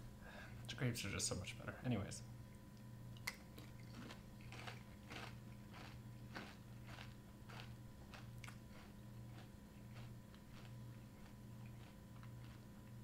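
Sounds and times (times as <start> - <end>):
low steady hum: 0.0 - 13.0
crunchy cereal being chewed: 3.2 - 13.0.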